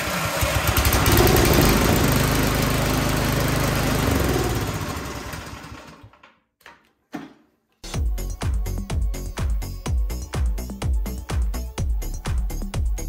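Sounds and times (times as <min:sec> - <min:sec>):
snowblower engine running: 0:00.0 - 0:06.2.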